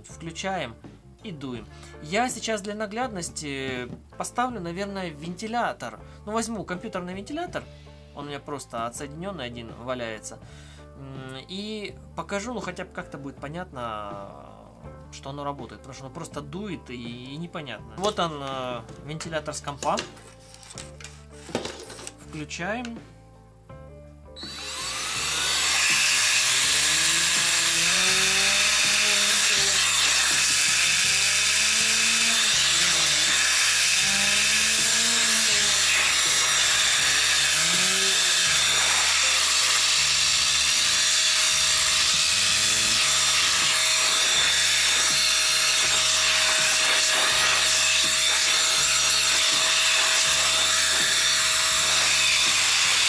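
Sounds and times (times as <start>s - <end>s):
air duster rush and motor whine: 24.4s - 30.6s, 41.9s - 53.0s.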